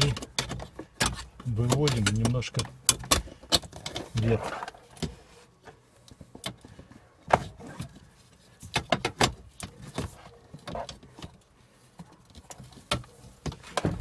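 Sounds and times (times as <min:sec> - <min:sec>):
metal brace knocking and rattling: 0:00.0 - 0:04.2.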